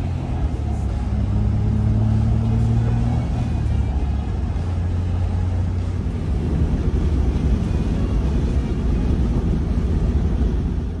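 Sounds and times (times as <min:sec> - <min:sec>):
car engine and road noise: 0:00.0 - 0:11.0
wind rumbling on microphone: 0:05.7 - 0:11.0.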